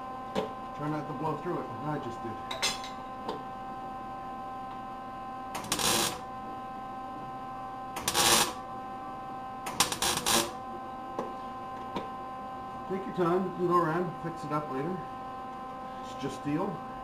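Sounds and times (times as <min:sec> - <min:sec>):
steady hum: 0:00.0 - 0:17.0
welder arc crackle: 0:05.5 - 0:06.3, 0:08.0 - 0:08.6, 0:09.7 - 0:10.6.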